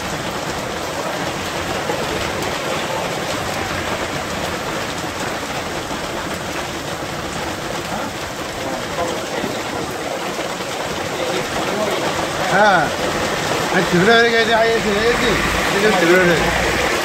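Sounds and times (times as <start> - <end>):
heavy rain and hail on street: 0.0 - 17.0.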